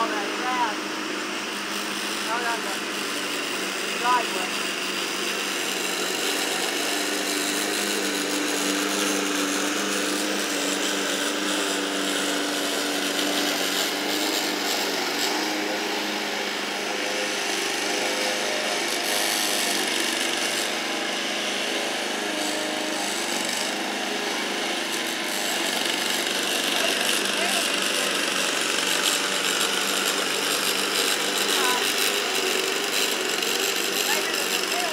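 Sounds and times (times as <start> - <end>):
distant lawn mower engine: 0.0 - 34.9.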